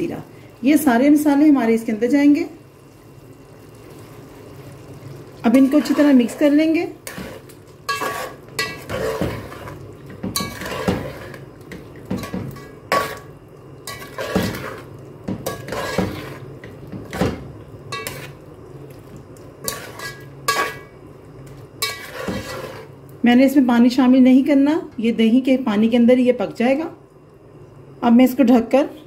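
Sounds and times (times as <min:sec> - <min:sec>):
metal spoon scraping a pot: 0:05.5 - 0:13.3, 0:13.9 - 0:16.5, 0:17.9 - 0:18.4, 0:19.6 - 0:20.9, 0:21.8 - 0:22.9.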